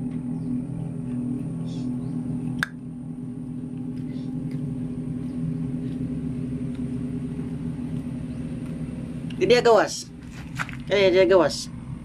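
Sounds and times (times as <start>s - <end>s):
motor humming: 0.0s - 12.0s
faint scuffs: 10.2s - 10.9s.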